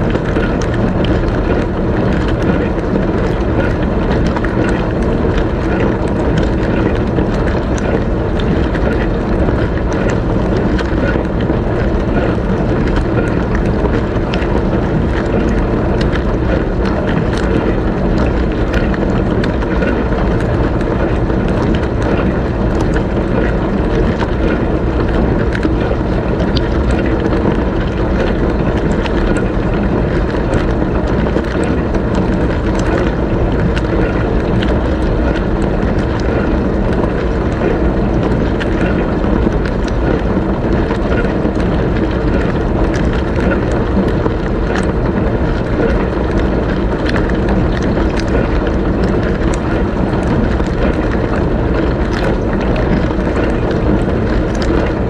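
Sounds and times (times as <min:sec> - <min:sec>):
pump humming: 0:00.0 - 0:55.0
drops ticking: 0:00.1 - 0:55.0.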